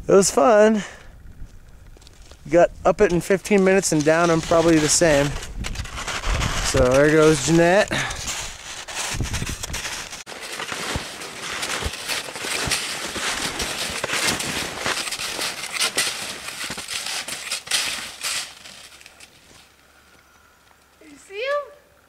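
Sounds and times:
snowshoe footsteps crunching in snow: 0:03.7 - 0:20.2.

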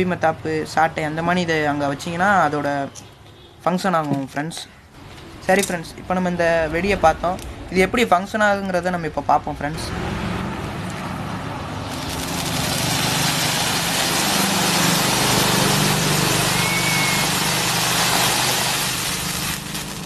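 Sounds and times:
firework fountain hissing: 0:11.8 - 0:20.0.

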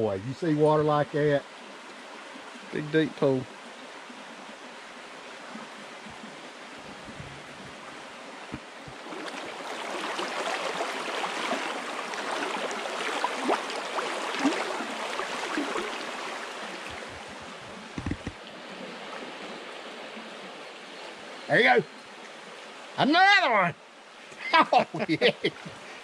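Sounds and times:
stream running over rocks: 0:00.0 - 0:26.0
small water splashes: 0:03.4 - 0:21.2.

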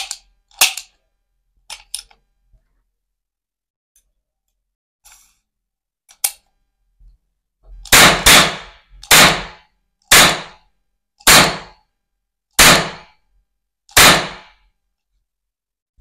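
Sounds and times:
cap gun bangs: 0:07.9 - 0:10.6, 0:11.2 - 0:11.7, 0:12.6 - 0:13.1, 0:14.0 - 0:14.6.

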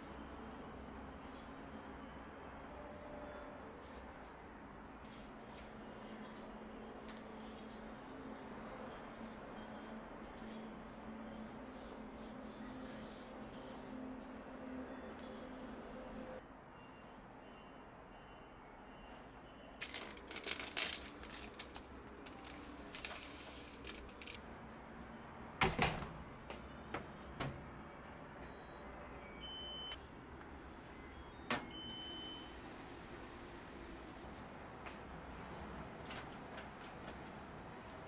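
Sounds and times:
short electronic beeps: 0:28.4 - 0:32.6.

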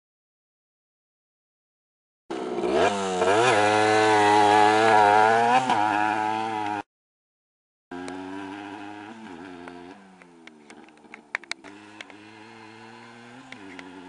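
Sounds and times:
dirt bike engine revving: 0:02.3 - 0:06.8, 0:07.9 - 0:14.0.

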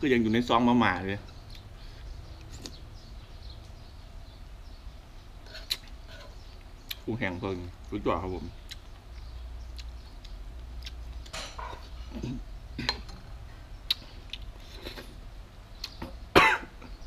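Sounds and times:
chewing: 0:05.4 - 0:07.0, 0:08.6 - 0:12.4.

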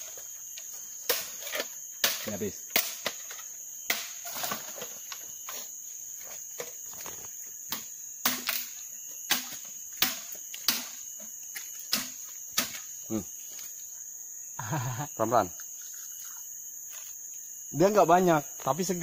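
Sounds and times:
insects droning: 0:00.0 - 0:19.0
machete chopping bamboo: 0:02.0 - 0:03.2, 0:03.8 - 0:04.2, 0:09.3 - 0:11.0.

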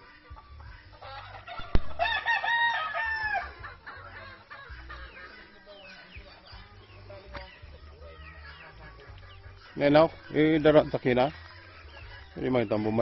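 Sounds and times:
chickens chirping and clucking: 0:00.0 - 0:13.0
rooster crowing: 0:01.1 - 0:03.7.

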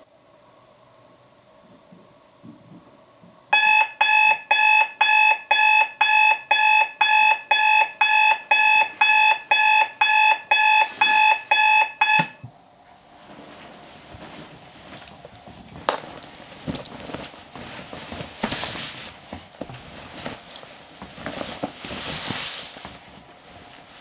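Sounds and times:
digital alarm clock beeping: 0:03.6 - 0:12.4.

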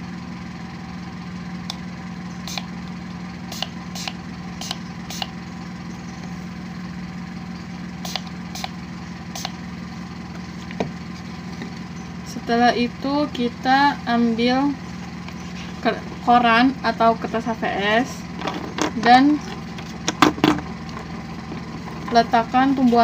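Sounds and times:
steady low hum: 0:00.0 - 0:23.0
spray bottle spritzing: 0:03.5 - 0:05.3, 0:08.0 - 0:08.8.

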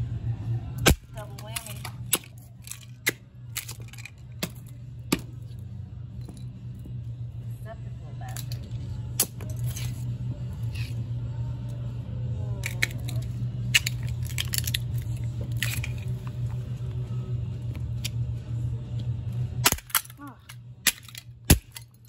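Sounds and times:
steady low hum: 0:00.0 - 0:22.0
plastic toys cracking underfoot: 0:12.6 - 0:16.5, 0:19.6 - 0:22.0.

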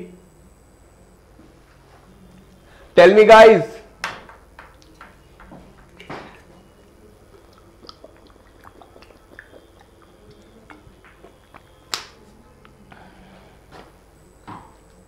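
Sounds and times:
man gulping drink: 0:05.9 - 0:11.8.

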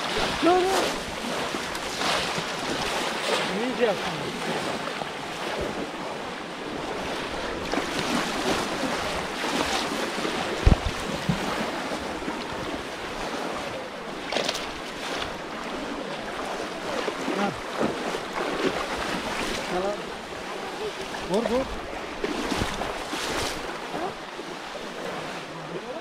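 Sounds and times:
muddy water splashing: 0:00.0 - 0:26.0
dull thump: 0:10.6 - 0:11.4.

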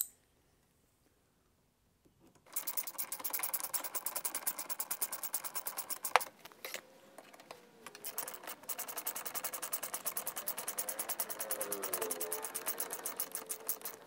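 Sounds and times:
sharp click: 0:00.0 - 0:00.2
power driver running bolts: 0:07.2 - 0:14.0.

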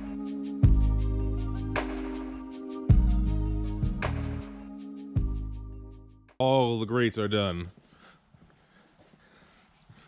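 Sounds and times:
background music held notes: 0:00.0 - 0:06.3.

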